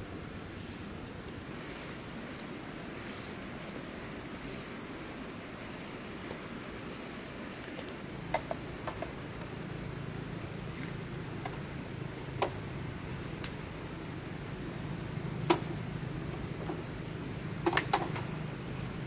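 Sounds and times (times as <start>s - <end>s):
high-pitched insect drone: 8.0s - 19.0s.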